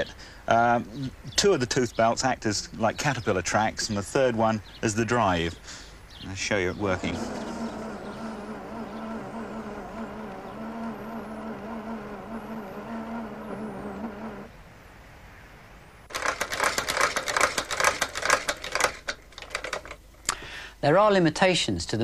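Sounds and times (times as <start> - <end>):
motor and belt tracks humming: 6.5 - 14.5
fast dense clatter of clicks: 16.1 - 20.0.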